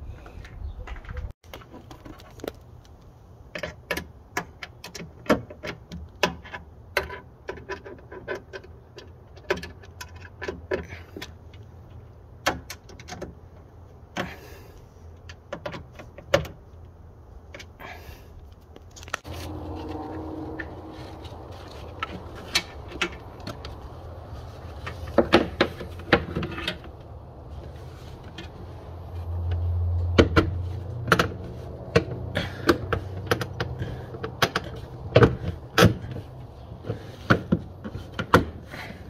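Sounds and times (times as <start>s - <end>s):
low steady hum: 18.2s - 38.9s.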